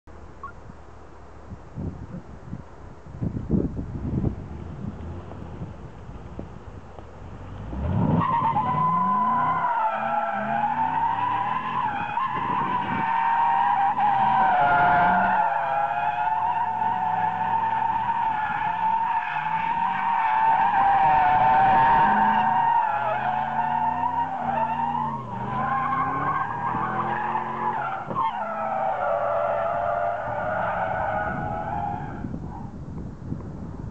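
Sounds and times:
car engine revving: 0:07.2 - 0:31.8.

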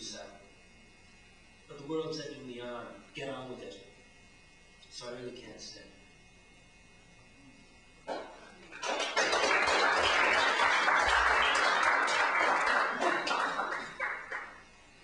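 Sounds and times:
audience applauding: 0:08.7 - 0:14.6.

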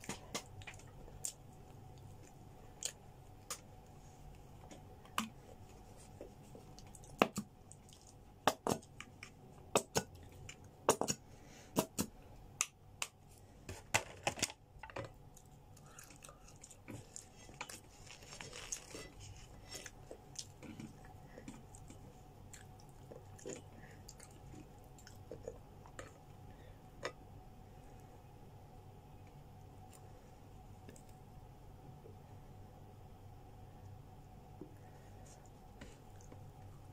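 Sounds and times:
crunchy food being chewed: 0:00.0 - 0:03.9, 0:06.4 - 0:11.2, 0:15.3 - 0:26.4
faint steady hum: 0:00.0 - 0:36.9.

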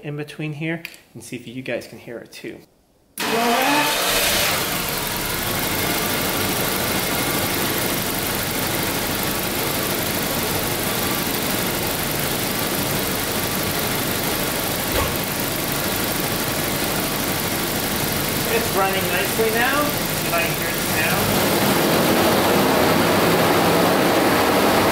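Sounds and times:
car engine idling: 0:03.2 - 0:24.9.

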